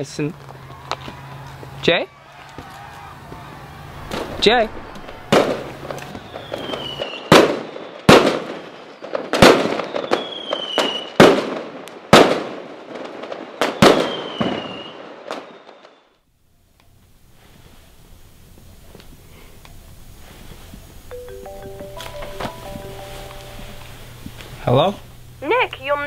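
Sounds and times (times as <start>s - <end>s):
fireworks whistles falling in pitch: 2.6s - 11.2s, 13.6s - 16.2s
fireworks bangs with crackle: 2.6s - 16.0s.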